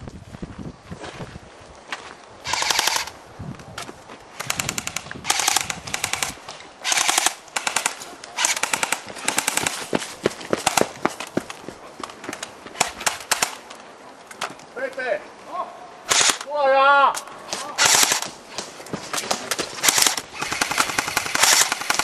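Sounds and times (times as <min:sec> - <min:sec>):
airsoft rifle bursts: 0:02.4 - 0:03.2, 0:04.4 - 0:09.8, 0:12.8 - 0:13.6, 0:16.1 - 0:16.5, 0:17.7 - 0:18.3, 0:19.5 - 0:22.0.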